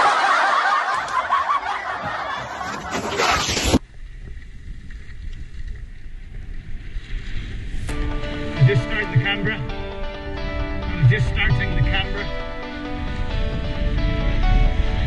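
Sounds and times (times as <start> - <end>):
loud laughing: 0.0 - 3.8
skis sliding over packed snow: 2.0 - 8.0
wind rumbling on microphone: 3.8 - 15.0.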